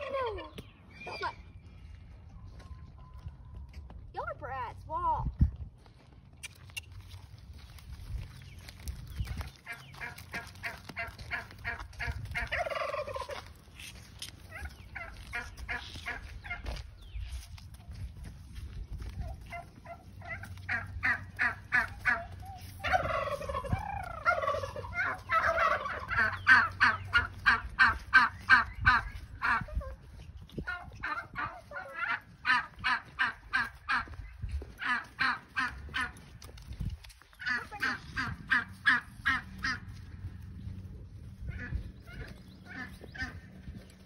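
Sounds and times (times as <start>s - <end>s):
poultry long falling calls: 9.3s - 13.5s, 19.4s - 29.8s.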